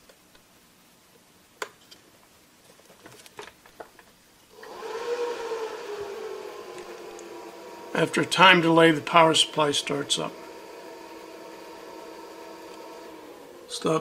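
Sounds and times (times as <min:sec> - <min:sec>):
cooling fan whirring: 0:04.5 - 0:14.0.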